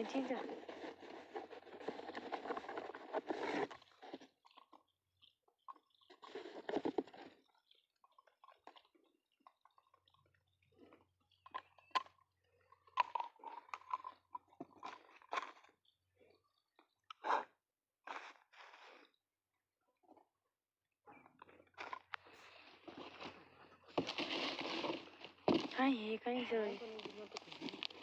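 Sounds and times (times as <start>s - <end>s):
cardboard box rustling: 0.0s - 4.3s, 22.7s - 28.0s.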